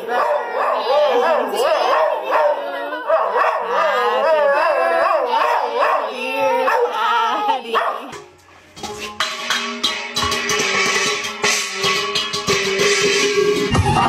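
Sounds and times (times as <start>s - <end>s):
dog howling: 0.0s - 8.0s
music: 8.1s - 14.0s.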